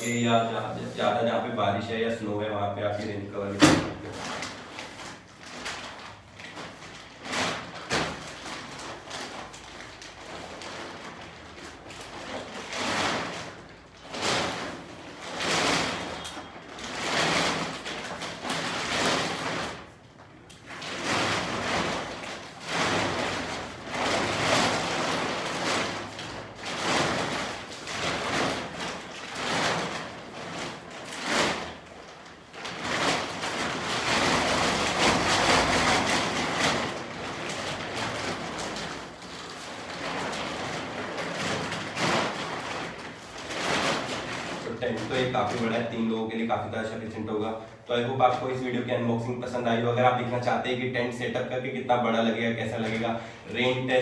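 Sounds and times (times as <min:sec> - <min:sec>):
tent fabric rustling: 0:04.1 - 0:20.0, 0:20.7 - 0:45.7.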